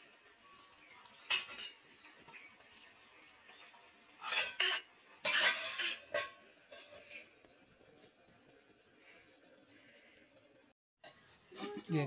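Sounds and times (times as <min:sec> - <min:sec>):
metal kitchenware clinking on pot: 0:01.2 - 0:01.8, 0:04.2 - 0:07.1.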